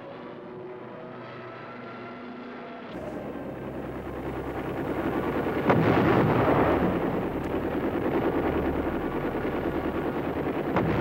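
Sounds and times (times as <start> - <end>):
steady low drone: 0.0 - 11.0
explosion crack and rolling rumble: 3.2 - 11.0.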